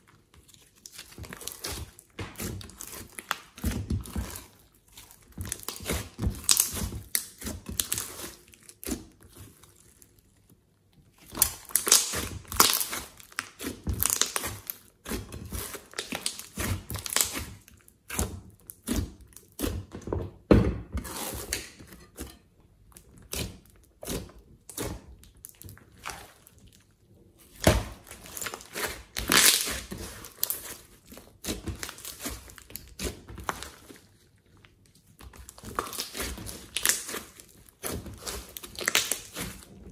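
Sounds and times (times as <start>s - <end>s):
slime squelching: 0.0s - 20.0s, 21.0s - 39.9s
slime crackling pops: 11.4s - 14.7s.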